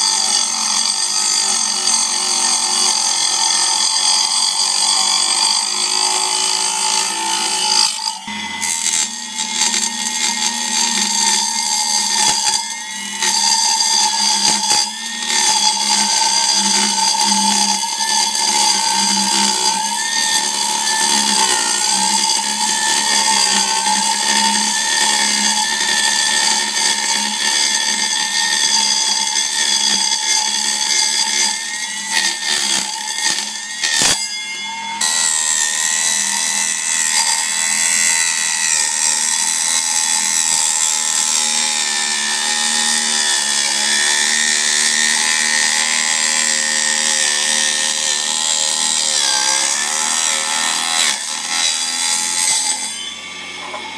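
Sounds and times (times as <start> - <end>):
metal-cutting screech: 0.0 - 53.9
table saw whine: 0.0 - 53.9.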